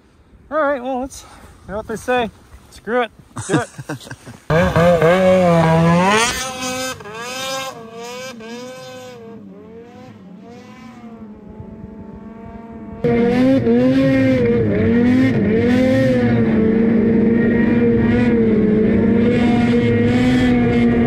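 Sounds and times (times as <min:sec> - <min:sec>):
snowmobile engine running hard: 0:04.5 - 0:21.0.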